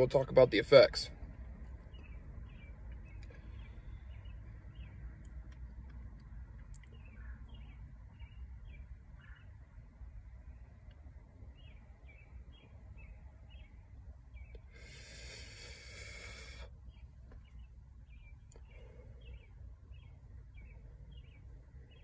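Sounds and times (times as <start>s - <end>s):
steady low rumble: 0.0s - 22.0s
breathy exhale: 14.7s - 16.8s.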